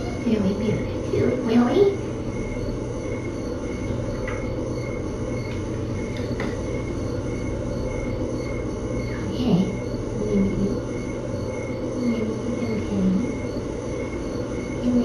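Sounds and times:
faint pulsing high tone: 0:00.0 - 0:15.0
room hum and hiss: 0:00.0 - 0:15.0.

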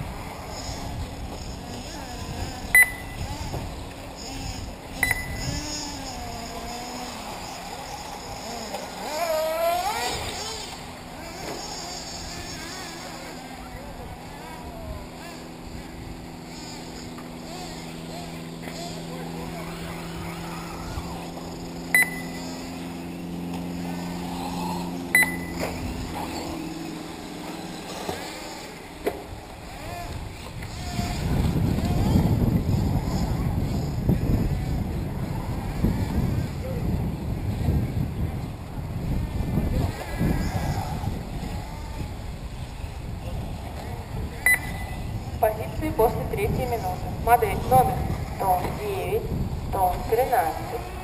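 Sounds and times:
model car motors whining: 0:00.0 - 0:51.0
short sharp beeps: 0:02.8 - 0:03.2, 0:05.0 - 0:05.4, 0:21.9 - 0:22.5, 0:25.2 - 0:25.6, 0:44.5 - 0:45.0.

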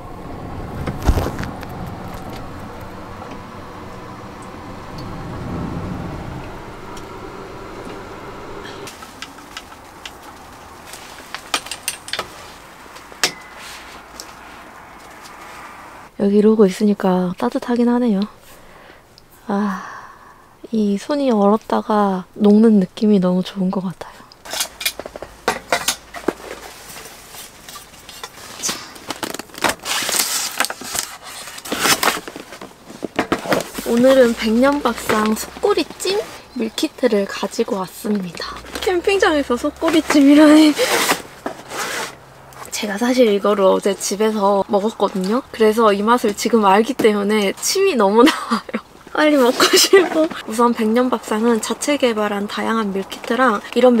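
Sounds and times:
low rumble: 0:00.0 - 0:08.9
lantern clinking on metal pole: 0:13.2 - 0:13.8
styrofoam box scraping and rustling: 0:26.0 - 0:36.5, 0:39.8 - 0:42.3.

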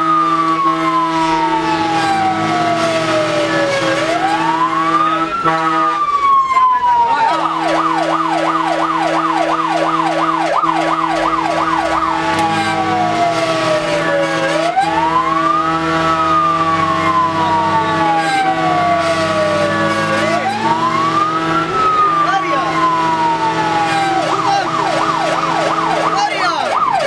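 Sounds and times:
fire engine siren: 0:00.0 - 0:27.0
truck engine humming: 0:00.0 - 0:27.0.

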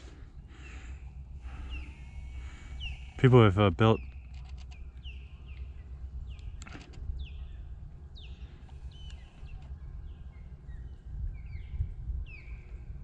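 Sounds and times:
low wind rumble: 0:00.0 - 0:13.0
ospreys whistling calls: 0:01.5 - 0:04.3.

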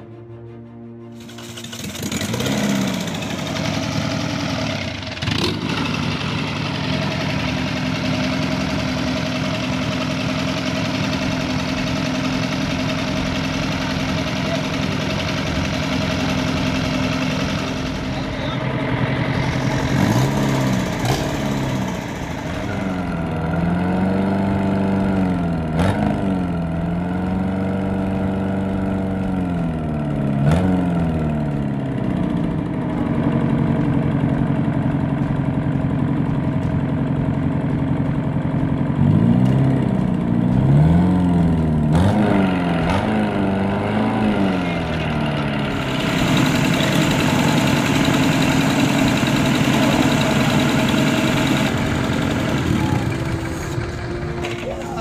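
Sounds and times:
diesel engine revving and idling: 0:01.2 - 0:55.0.

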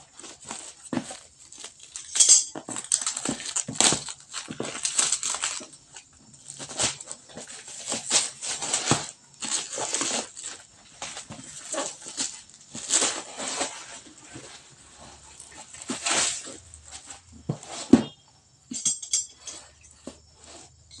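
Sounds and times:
plastic ripping: 0:00.0 - 0:17.2
plastic wrap crinkling: 0:00.0 - 0:17.7
cardboard scraping: 0:02.6 - 0:18.2.

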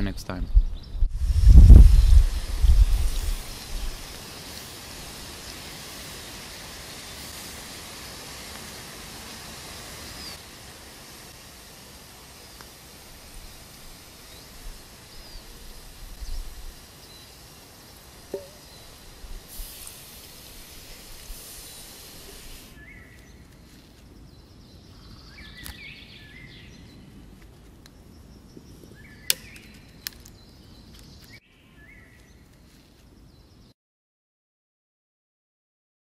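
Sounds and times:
hands scraping forest litter: 0:02.3 - 0:11.8
small crackles: 0:02.4 - 0:10.5, 0:12.3 - 0:24.2, 0:27.2 - 0:33.2.

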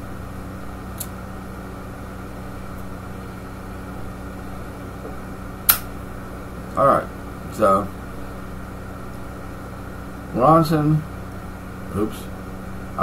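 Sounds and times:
steady low hum: 0:00.0 - 0:13.0
lighter clicking: 0:05.6 - 0:05.9.

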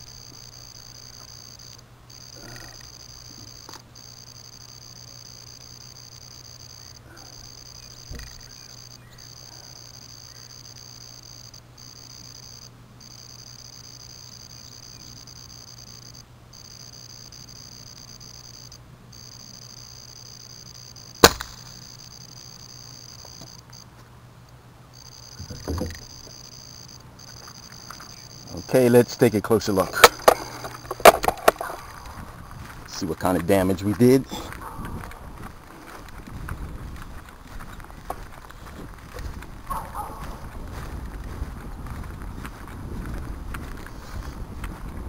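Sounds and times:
insects trilling: 0:00.0 - 0:23.9, 0:24.9 - 0:35.1
air rifle shot: 0:21.2 - 0:21.7.

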